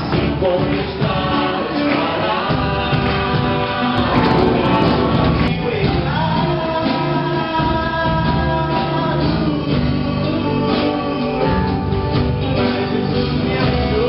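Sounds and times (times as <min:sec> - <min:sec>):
band with drums: 0:00.0 - 0:14.0
man singing into a microphone: 0:05.3 - 0:14.0.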